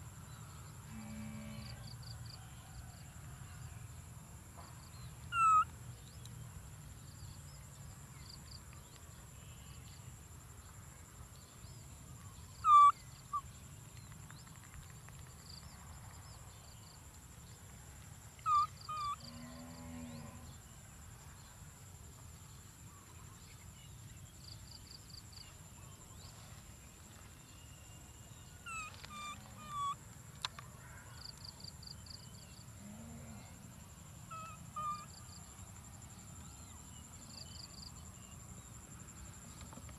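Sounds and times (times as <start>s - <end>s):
baby monkey squeaky calls: 5.3s - 5.6s, 12.6s - 13.0s, 18.5s - 19.2s, 28.7s - 30.0s.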